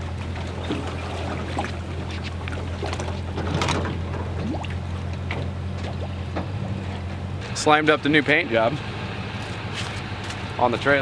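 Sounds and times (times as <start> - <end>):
water sounds: 0.0 - 7.7.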